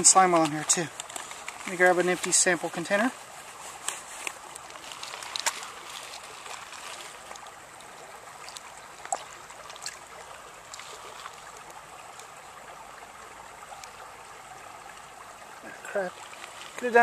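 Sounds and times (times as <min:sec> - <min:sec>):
stream trickling over pebbles: 0:00.0 - 0:17.0.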